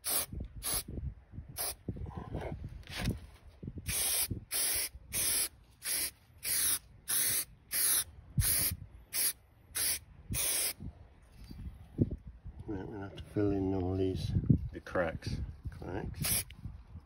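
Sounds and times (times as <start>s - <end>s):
aerosol can spraying: 0.0s - 0.8s, 3.9s - 10.8s, 16.2s - 16.5s.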